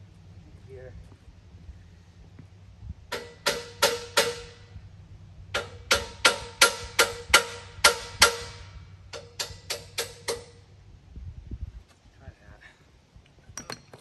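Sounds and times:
hammer striking steel frame: 3.1 - 4.7, 5.5 - 10.6.

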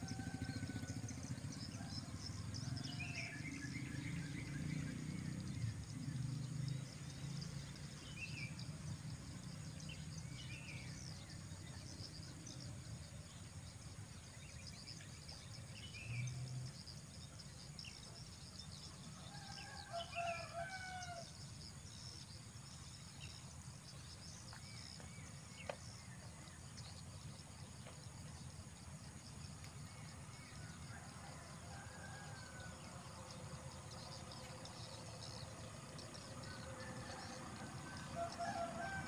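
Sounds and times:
faint high insect drone: 0.0 - 39.0
rooster crowing: 19.3 - 21.3, 36.5 - 39.0.

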